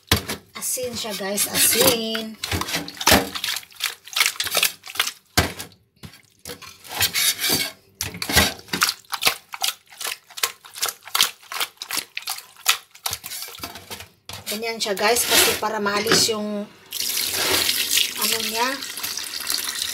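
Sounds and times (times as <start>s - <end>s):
hands rubbing chicken in bowl: 8.8s - 13.6s.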